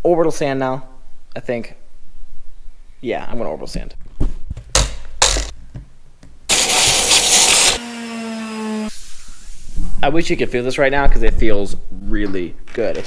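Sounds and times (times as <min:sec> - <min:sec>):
orbital sander hissing on wood: 0:06.5 - 0:09.8.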